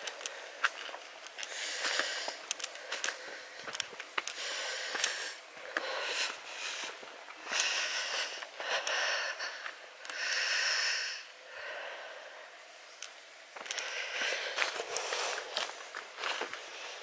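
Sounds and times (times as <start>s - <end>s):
loud breathing: 1.4s - 12.6s, 13.6s - 15.8s.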